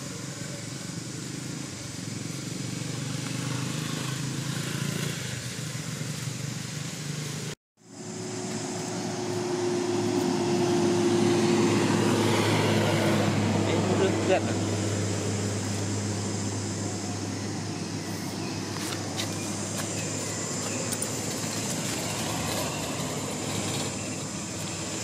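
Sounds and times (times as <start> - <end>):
motor engine humming: 5.7 - 25.0.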